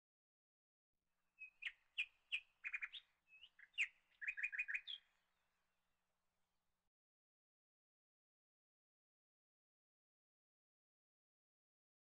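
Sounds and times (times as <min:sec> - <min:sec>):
bird chirping: 0:01.4 - 0:05.2.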